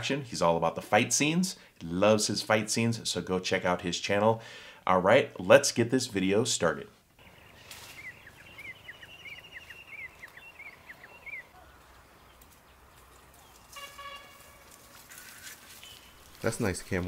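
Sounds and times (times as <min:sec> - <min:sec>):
faint outdoor background noise: 0:00.0 - 0:17.0
bird chirping: 0:07.2 - 0:17.0.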